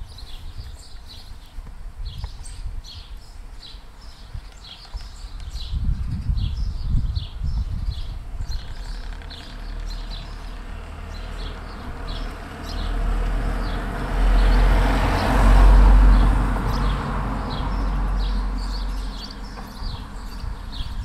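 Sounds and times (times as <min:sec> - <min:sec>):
small birds chirping: 0:00.0 - 0:14.6, 0:16.1 - 0:21.0
motor vehicle passing: 0:08.4 - 0:20.8.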